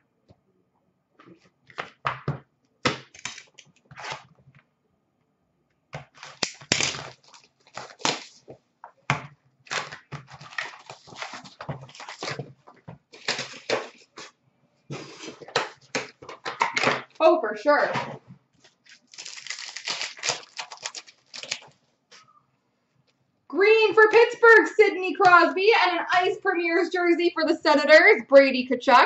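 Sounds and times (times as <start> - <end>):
cardboard and wrappers tearing: 6.1 - 8.5, 9.7 - 12.5, 13.1 - 14.3, 18.6 - 21.8.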